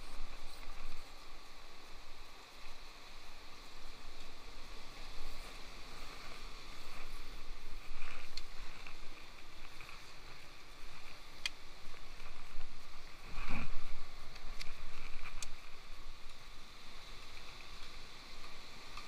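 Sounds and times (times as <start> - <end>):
sea surf washing over rocks: 0.0 - 19.0
wind buffeting microphone: 3.6 - 18.7.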